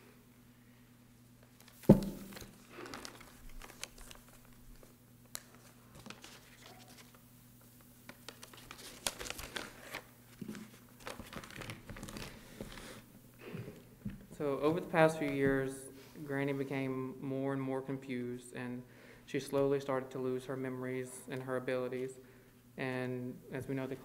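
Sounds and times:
faint electrical hum: 0.0s - 24.0s
paper rustling and crinkling: 1.5s - 7.2s, 8.0s - 13.0s
sharp thump: 1.9s - 2.3s.

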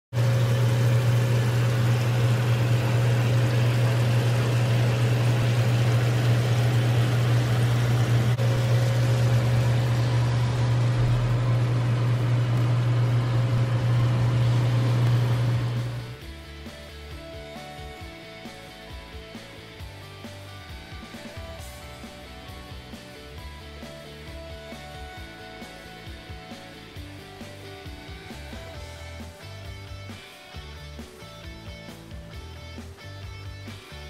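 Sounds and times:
loud low hum: 0.2s - 16.2s.

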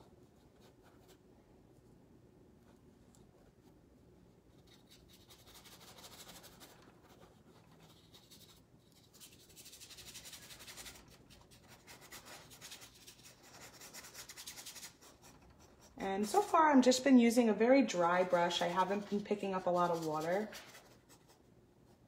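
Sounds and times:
dry brush scrubbing canvas: 4.6s - 17.0s, 18.0s - 21.4s.

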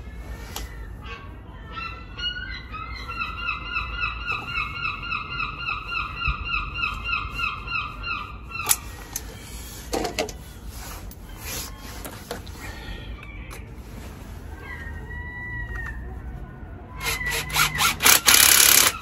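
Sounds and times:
gull calling: 0.6s - 9.4s.

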